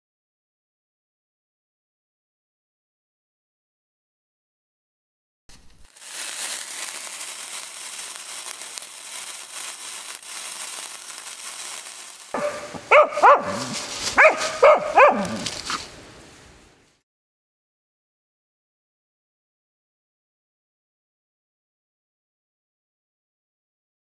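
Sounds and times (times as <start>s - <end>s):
burning powder fizzing: 5.8s - 16.4s
dog barking: 12.4s - 15.4s.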